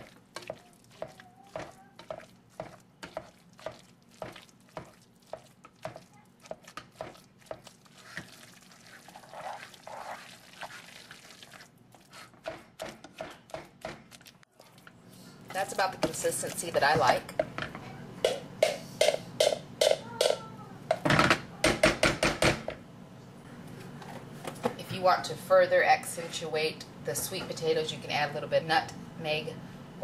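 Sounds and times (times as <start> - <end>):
potato masher squashing strokes: 0.0 - 14.4
masher knocking pot bottom: 18.2 - 22.7.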